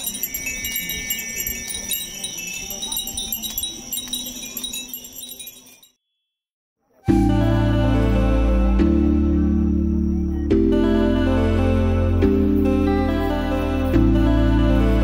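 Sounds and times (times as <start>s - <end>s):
glass wind chimes tinkling: 0.0s - 6.0s.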